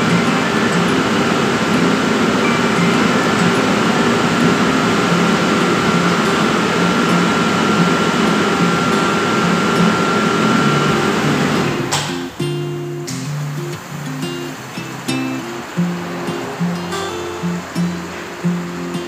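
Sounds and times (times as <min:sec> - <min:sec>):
loud rushing machine noise: 0:00.0 - 0:12.4
faint high whine: 0:00.0 - 0:19.0.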